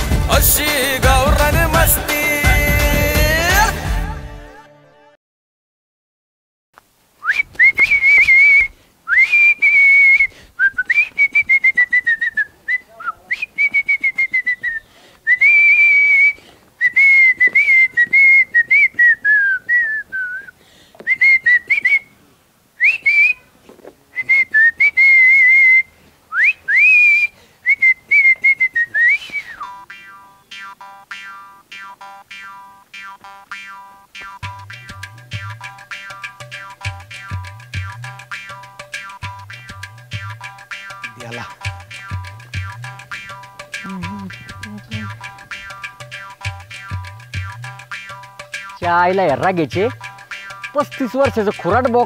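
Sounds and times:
person whistling a tune: 7.2s - 20.5s, 21.1s - 22.1s, 22.8s - 23.4s, 24.2s - 29.8s.

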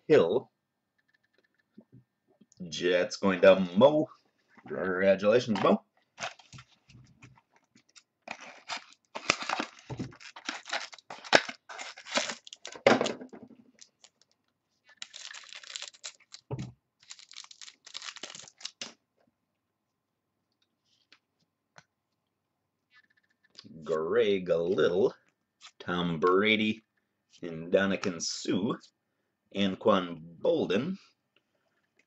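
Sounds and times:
foil wrapper tearing and crinkling: 7.9s - 12.9s, 13.8s - 18.9s.

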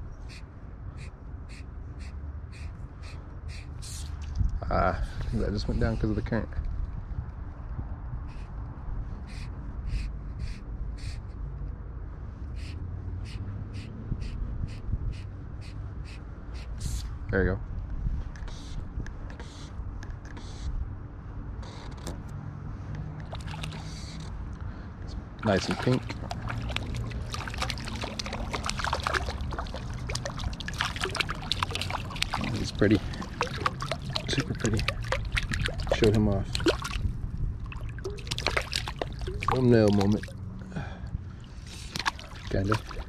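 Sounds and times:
water splashing and dripping: 23.2s - 24.3s, 25.4s - 40.5s, 41.5s - 43.0s
river rushing: 25.4s - 36.0s.

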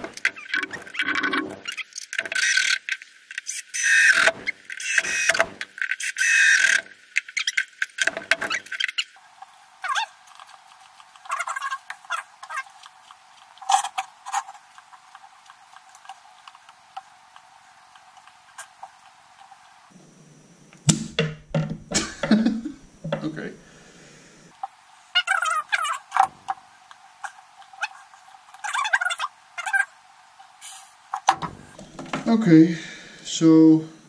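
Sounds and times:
hand pump squeaks: 0.2s - 9.1s.

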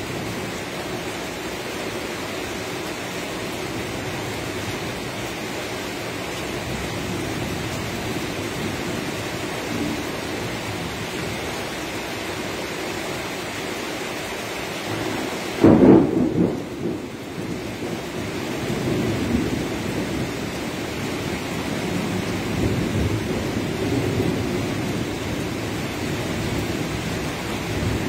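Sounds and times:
steady rain: 0.0s - 28.0s
thunder clap rumbling: 14.9s - 20.4s.

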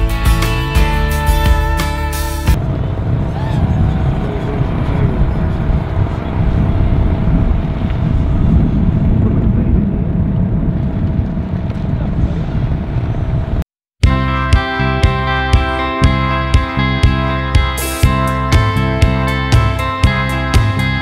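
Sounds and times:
distant drone motor hum: 2.4s - 13.6s
wind rumbling on microphone: 2.5s - 13.7s.

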